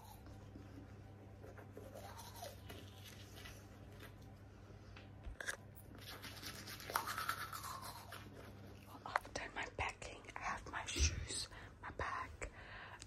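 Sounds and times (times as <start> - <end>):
toothbrush scrubbing teeth: 0.0 - 3.8, 5.9 - 9.0.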